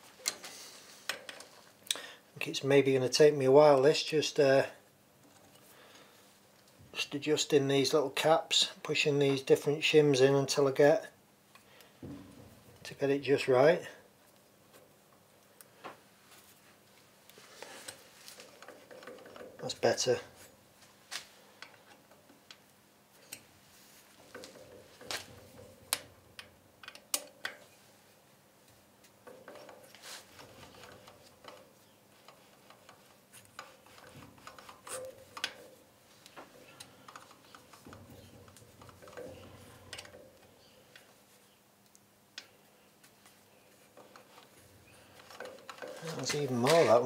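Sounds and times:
faint clicks and metal taps: 0.2s - 2.0s, 21.1s - 27.8s, 29.0s - 47.0s.

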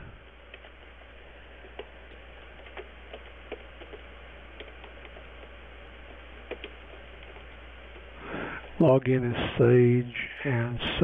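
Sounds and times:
faint low hum: 0.0s - 11.0s
computer keyboard typing: 0.3s - 8.2s.

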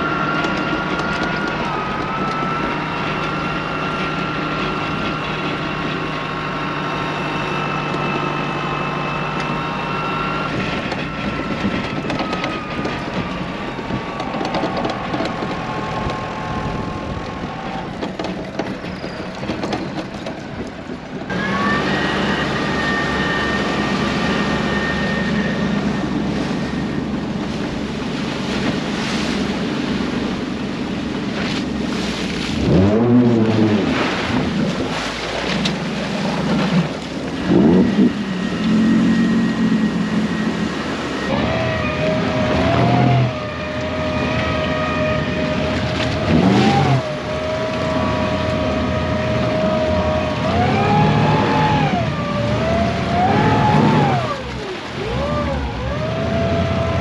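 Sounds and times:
outboard motor running: 0.0s - 57.0s
tractor engine running: 0.0s - 57.0s.

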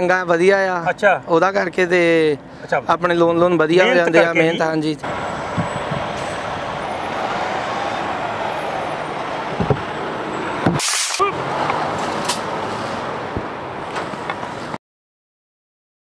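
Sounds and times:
diesel truck engine rumbling: 0.0s - 14.8s
air brakes hissing: 12.3s - 13.1s.

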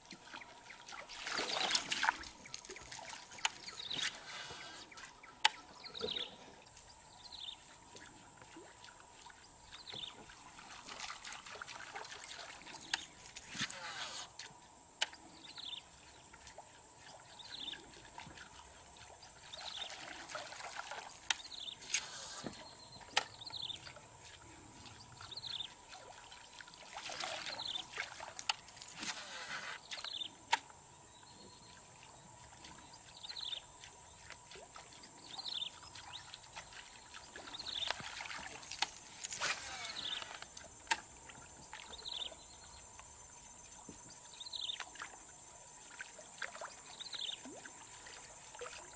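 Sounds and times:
water trickling and splashing: 0.0s - 48.9s
fishing line running out: 12.4s - 14.4s, 21.0s - 23.3s, 27.1s - 30.2s, 37.7s - 41.1s.

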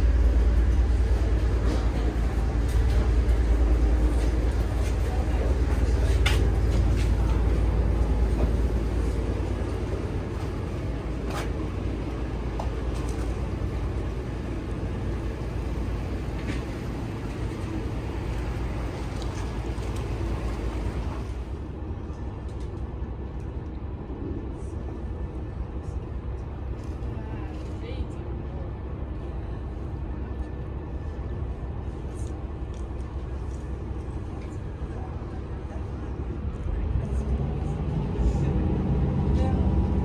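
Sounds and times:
vehicle engine rumble: 0.0s - 40.0s
people talking: 1.0s - 8.6s, 27.0s - 29.7s, 34.3s - 40.0s.

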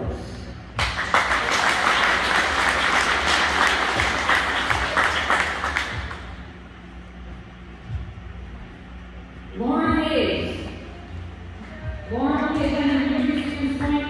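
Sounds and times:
audience applauding: 0.8s - 6.4s.

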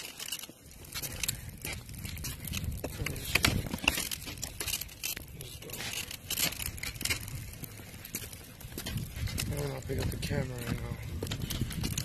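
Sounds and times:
clicks and scrapes: 0.0s - 9.5s.

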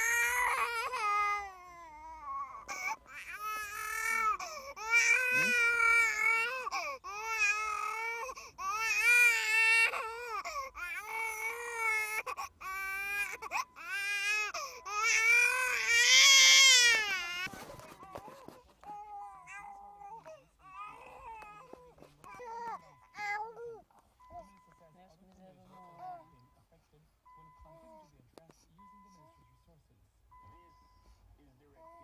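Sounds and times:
baby crying: 0.0s - 23.8s.

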